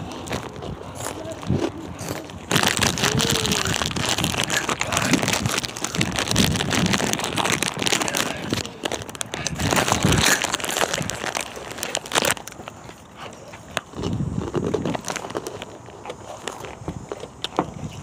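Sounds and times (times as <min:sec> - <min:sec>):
crackling and rustling: 0:00.0 - 0:18.0.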